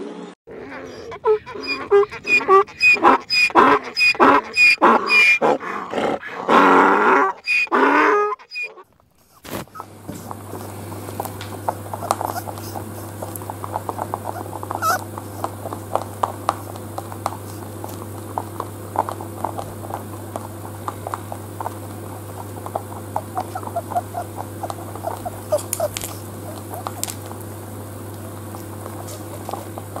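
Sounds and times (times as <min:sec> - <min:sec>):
rabbit crunching food: 0:08.8 - 0:30.0.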